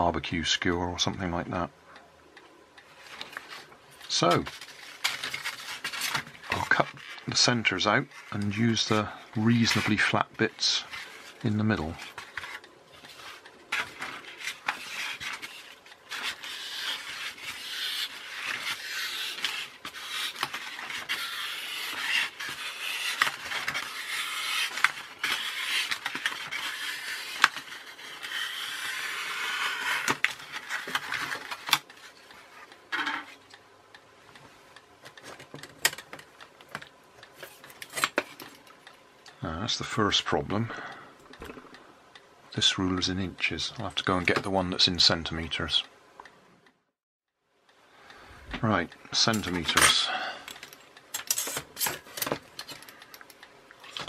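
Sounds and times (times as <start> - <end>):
knife cutting through foam: 16.2 - 30.2.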